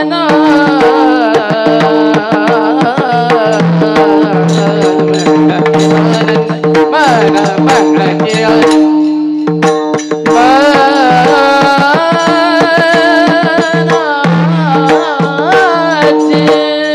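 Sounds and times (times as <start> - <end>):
hand drum strokes: 0.0 - 16.9
man singing: 0.0 - 16.9
small hand cymbals: 3.3 - 16.9.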